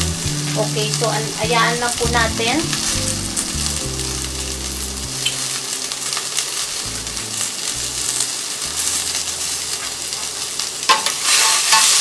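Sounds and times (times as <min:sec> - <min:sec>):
shrimp sizzling in oil: 0:00.0 - 0:12.0.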